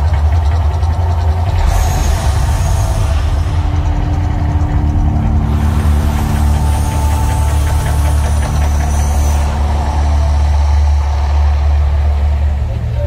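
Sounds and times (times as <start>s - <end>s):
deep rumble of gas flames: 0.0s - 13.0s.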